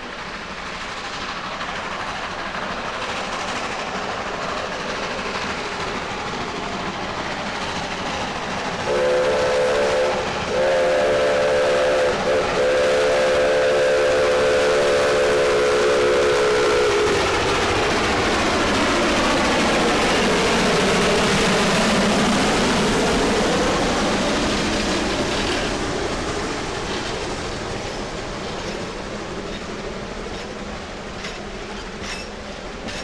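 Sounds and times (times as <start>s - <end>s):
steam locomotive running: 0.0s - 33.0s
chord steam whistle: 8.8s - 17.3s.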